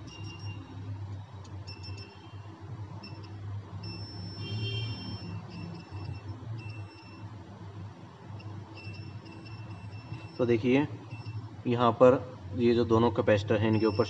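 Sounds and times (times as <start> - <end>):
multimeter beeping: 0.0 - 11.8, 13.5 - 14.0.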